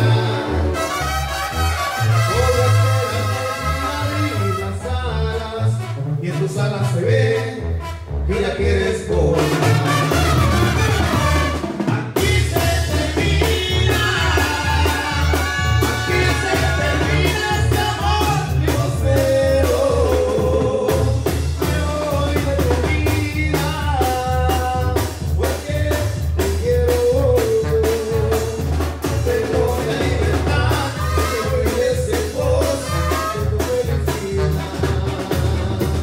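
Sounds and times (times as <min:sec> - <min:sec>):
latin dance music: 0:00.0 - 0:36.0
person singing: 0:11.9 - 0:28.6, 0:29.3 - 0:36.0.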